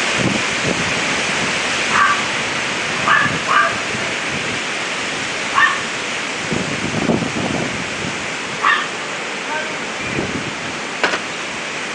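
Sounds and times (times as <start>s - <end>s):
strong wind in trees: 0.0s - 11.9s
dog barking: 1.9s - 2.3s, 3.0s - 3.8s, 5.5s - 5.9s, 8.6s - 8.9s.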